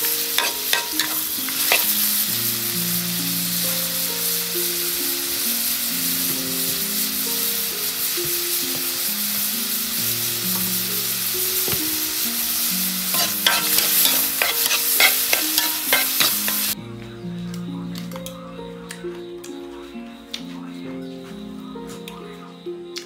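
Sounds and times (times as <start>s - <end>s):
food sizzling in a wok: 0.0s - 16.8s
quiet background music: 0.0s - 23.0s
spatula scraping a wok: 0.1s - 2.1s, 13.0s - 16.8s.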